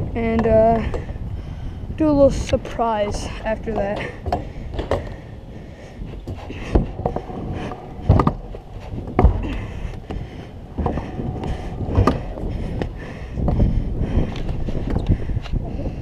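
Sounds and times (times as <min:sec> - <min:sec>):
scooter wheels rolling: 0:02.1 - 0:16.0
scooter clacks and thuds on ramp: 0:03.6 - 0:05.2, 0:10.8 - 0:12.9.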